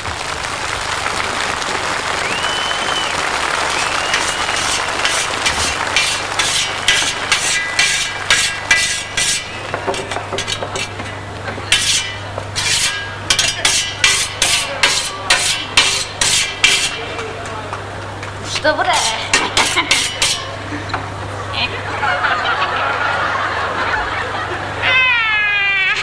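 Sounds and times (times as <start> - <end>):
short rasping scrapes: 4.2 - 11.0, 11.7 - 17.0, 18.9 - 20.5.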